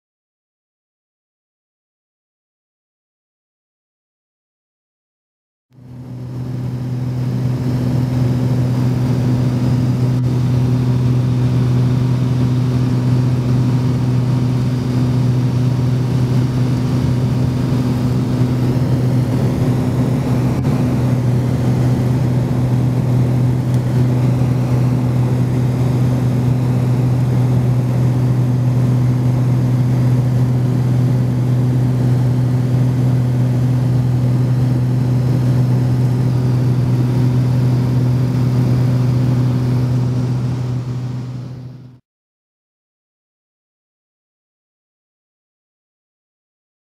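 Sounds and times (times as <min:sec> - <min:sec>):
light aircraft engine drone: 0:05.8 - 0:42.0.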